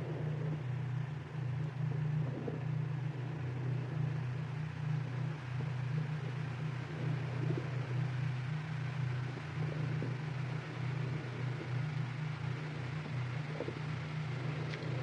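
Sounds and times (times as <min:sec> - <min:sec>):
low electronic drone: 0:00.0 - 0:15.0.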